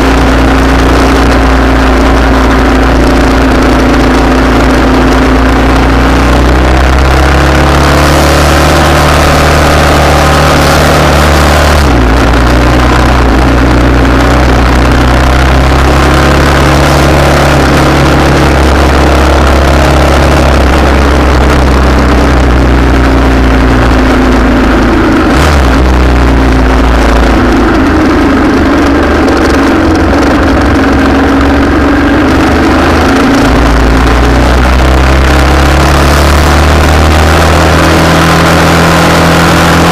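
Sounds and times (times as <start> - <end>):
vehicle engines idling: 0.0 - 39.9.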